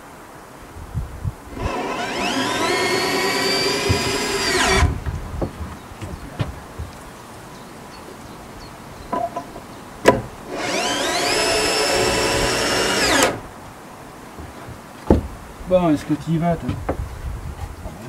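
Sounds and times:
cordless drill whining: 1.5s - 5.0s, 10.5s - 13.4s.

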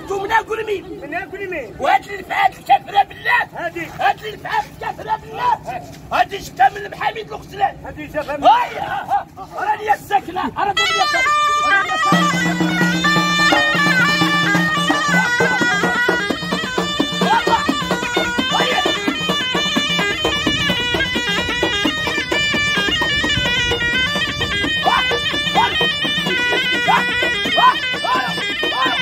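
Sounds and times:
reedy wind instrument melody: 8.4s - 29.0s.

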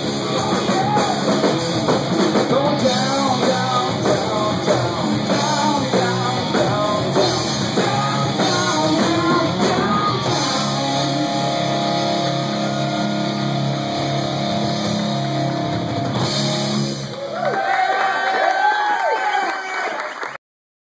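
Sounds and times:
person singing: 0.0s - 1.5s, 2.3s - 14.7s
electric guitar: 0.0s - 17.4s
drum kit: 0.0s - 17.5s
rock band playing: 0.0s - 17.7s.

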